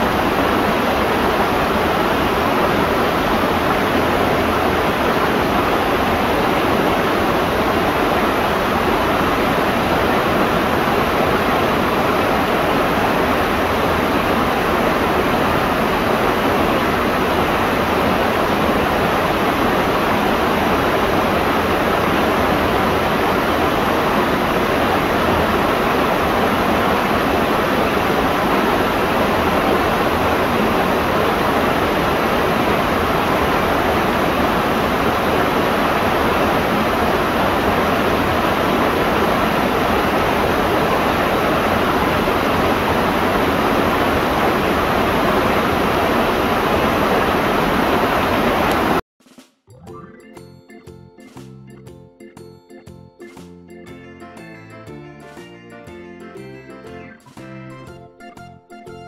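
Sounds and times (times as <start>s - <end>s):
waterfall rushing: 0.0s - 49.0s.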